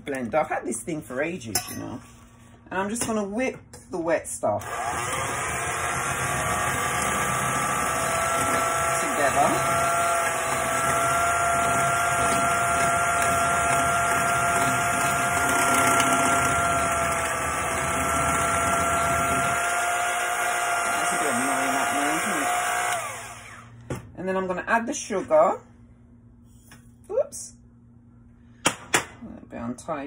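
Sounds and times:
electric hand mixer whining: 0:04.6 - 0:23.8.

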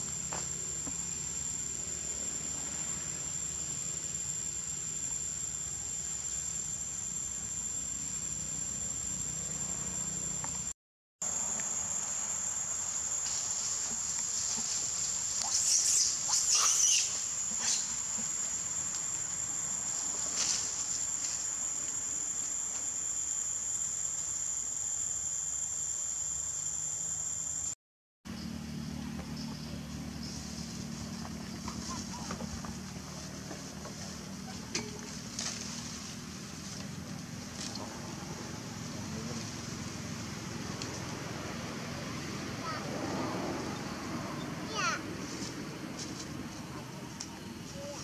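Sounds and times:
forest insects droning: 0:00.0 - 0:48.0.

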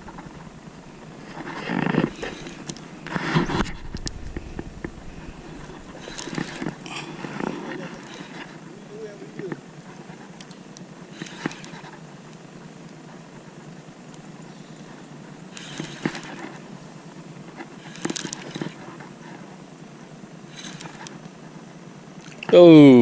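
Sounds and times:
steady outdoor hiss: 0:00.0 - 0:23.0
fishing reel scuffs and clicks: 0:05.6 - 0:06.8, 0:11.1 - 0:11.9, 0:15.5 - 0:16.6, 0:17.6 - 0:19.0, 0:20.5 - 0:21.2.

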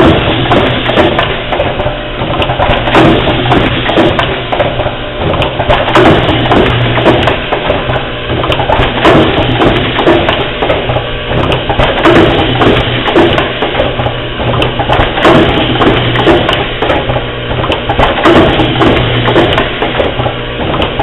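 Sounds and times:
machine clacking: 0:00.0 - 0:21.0.

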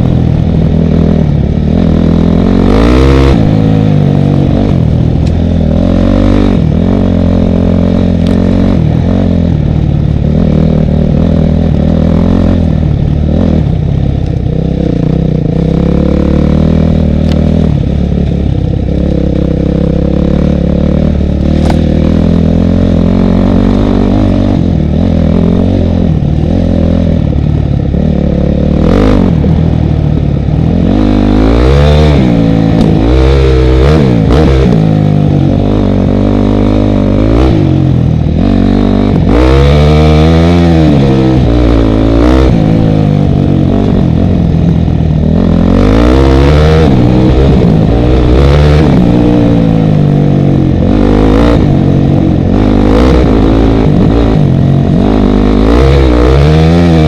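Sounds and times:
motorcycle engine revving: 0:00.0 - 0:57.0
sharp knocks from rough track: 0:21.5 - 0:21.9.

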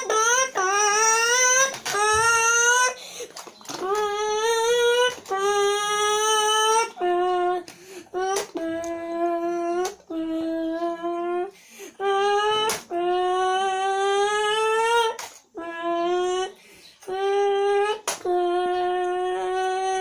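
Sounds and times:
boy imitating engine with voice: 0:00.0 - 0:20.0
boy breathing: 0:02.9 - 0:03.5, 0:07.6 - 0:08.2, 0:11.4 - 0:12.1, 0:16.5 - 0:17.1.

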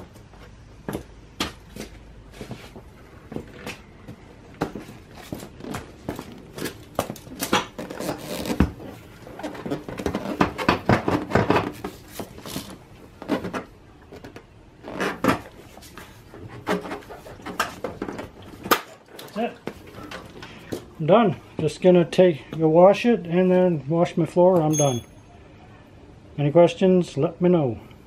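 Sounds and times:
seat rubbing and scraping: 0:07.7 - 0:13.4.

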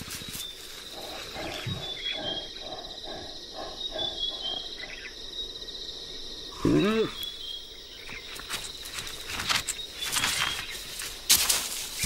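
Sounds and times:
high insect trill: 0:00.0 - 0:12.0.

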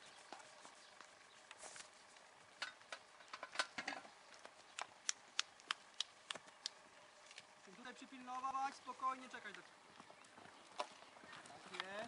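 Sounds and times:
horse hooves clicking and tapping: 0:08.5 - 0:12.0.

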